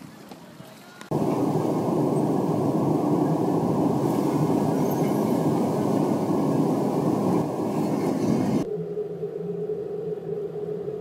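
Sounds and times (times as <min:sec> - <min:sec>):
muffled rushing noise: 0:01.1 - 0:08.7.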